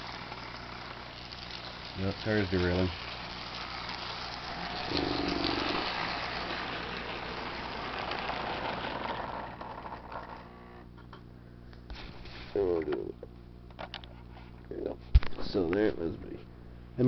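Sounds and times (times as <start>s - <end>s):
model train rattling whir: 0.0s - 10.8s.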